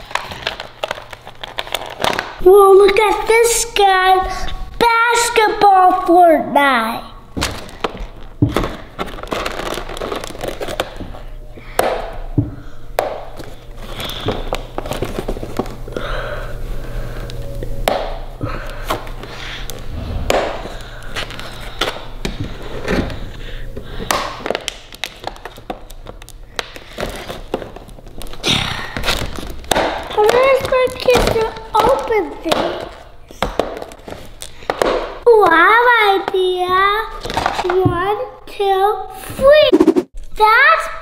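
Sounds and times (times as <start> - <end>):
plastic packaging crinkling: 0.0 - 2.4, 7.4 - 11.4, 13.4 - 15.8, 24.4 - 33.0.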